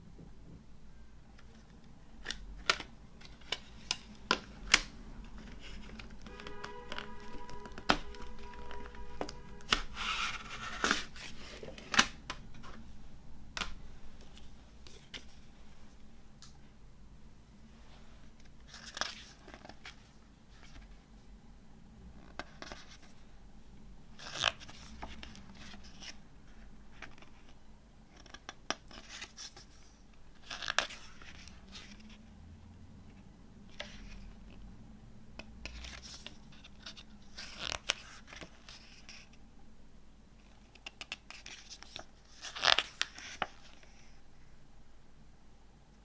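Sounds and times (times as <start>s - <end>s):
paper pages rustling: 1.4s - 12.8s, 18.3s - 21.0s, 24.2s - 32.2s, 35.7s - 39.4s, 40.5s - 44.2s.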